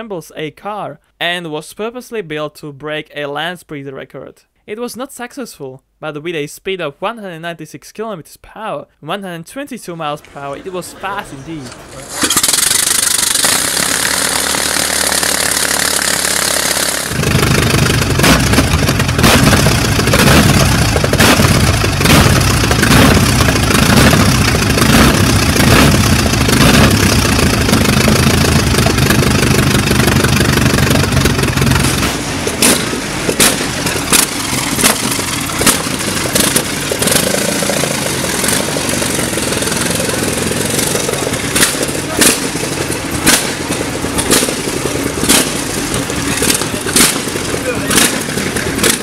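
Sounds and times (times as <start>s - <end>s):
sharp exhaust cracks: 11.6s - 49.0s
race car engine running loud: 11.7s - 49.0s.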